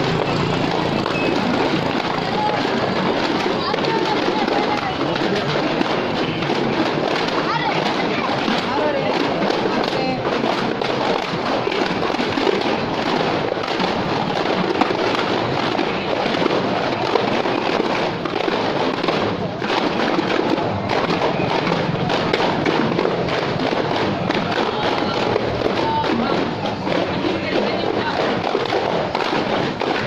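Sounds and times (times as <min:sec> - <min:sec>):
voices: 0:00.0 - 0:13.6, 0:20.8 - 0:30.0
dense crackling clatter: 0:00.0 - 0:30.0.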